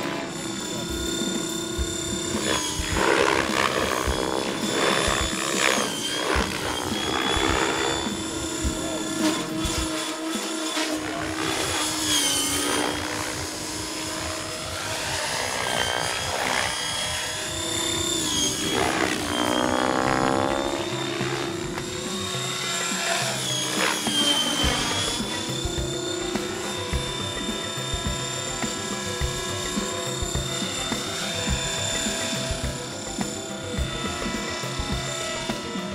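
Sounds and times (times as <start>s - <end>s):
background music: 0.0s - 35.9s
model helicopter rotor whine: 0.0s - 35.9s.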